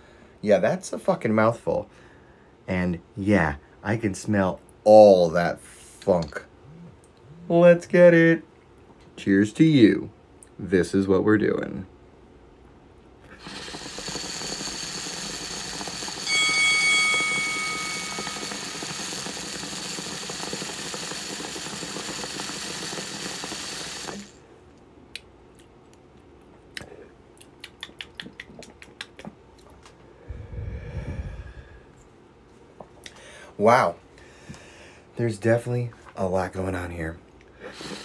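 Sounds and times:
bubbling sizzling hiss: 13.3s - 24.4s
breathy exhale: 30.2s - 31.9s.

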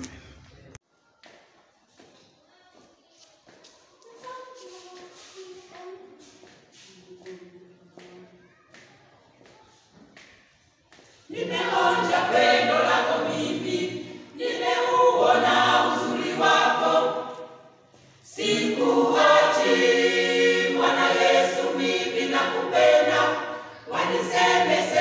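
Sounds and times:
choir singing a hymn unaccompanied: 11.3s - 25.0s.

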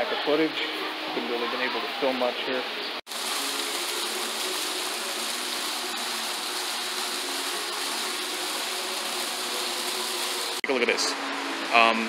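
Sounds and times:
fountain water splashing: 3.1s - 10.6s.

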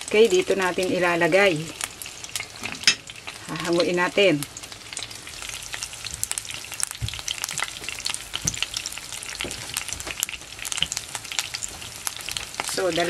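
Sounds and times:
oil sizzling in a pan: 0.0s - 13.0s
small crackling pops: 4.6s - 12.8s.

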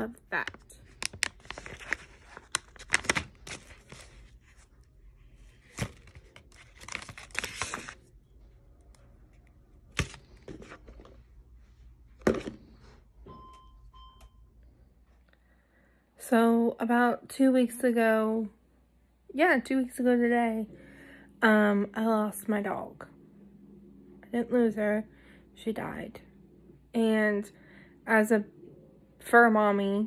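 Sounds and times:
plastic wrappers crinkling: 0.4s - 4.8s, 5.4s - 8.2s.

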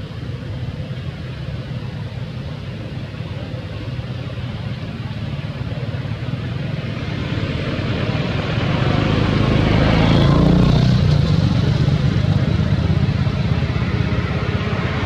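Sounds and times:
vehicle engine running: 0.0s - 15.0s.

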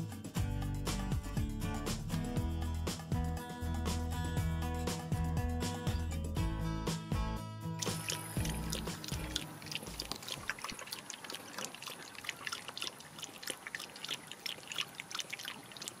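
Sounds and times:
background music: 0.0s - 10.2s
dog lapping water: 7.8s - 16.0s.

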